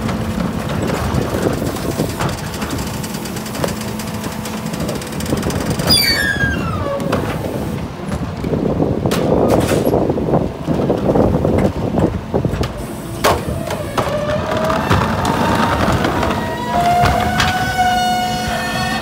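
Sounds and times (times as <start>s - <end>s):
garbage truck engine running: 0.0s - 19.0s
trash rattling out of carts: 0.0s - 19.0s
hydraulic tipper squeal: 5.8s - 7.2s, 13.5s - 19.0s.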